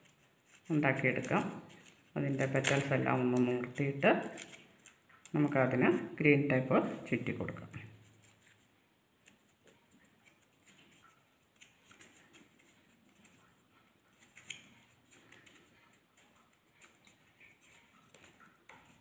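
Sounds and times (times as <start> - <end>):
tape crinkling: 0.0 - 5.4.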